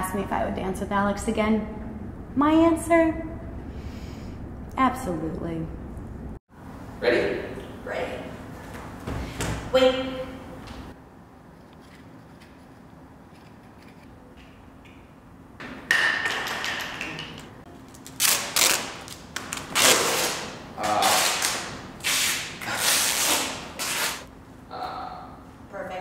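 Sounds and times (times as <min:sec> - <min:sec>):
duct tape ripping off roll: 0:17.9 - 0:24.3.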